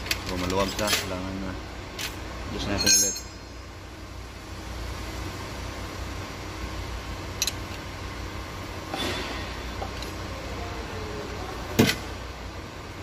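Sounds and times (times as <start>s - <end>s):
low workshop hum: 0.0s - 13.0s.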